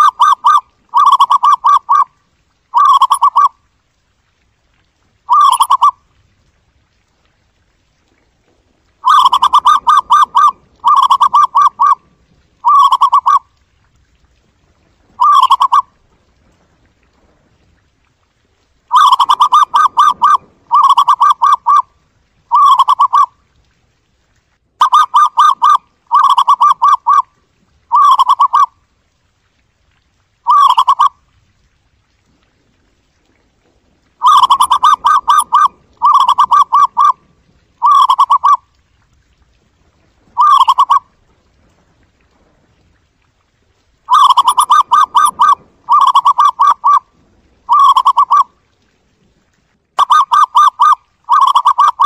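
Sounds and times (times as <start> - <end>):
dove trilling coos: 0.0 - 2.1, 2.7 - 3.5, 5.3 - 6.0, 9.0 - 12.0, 12.6 - 13.4, 15.2 - 15.9, 18.9 - 21.9, 22.5 - 23.3, 24.8 - 27.3, 27.9 - 28.7, 30.5 - 31.1, 34.2 - 37.2, 37.8 - 38.6, 40.3 - 41.0, 44.1 - 47.1, 47.7 - 48.5, 50.0 - 52.0.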